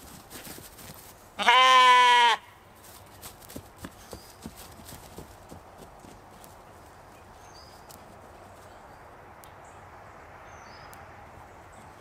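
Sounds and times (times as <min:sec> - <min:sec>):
hooves knocking on grass: 0:00.0 - 0:01.7, 0:02.7 - 0:08.8
sheep bleating: 0:01.4 - 0:02.5.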